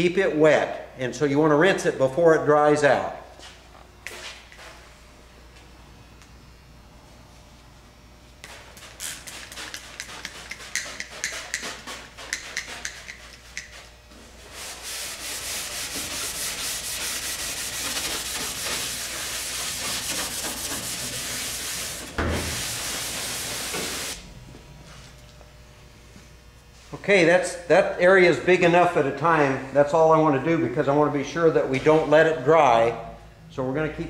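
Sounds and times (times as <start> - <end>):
scouring pad scrubbing aluminium: 14.5 - 22.0.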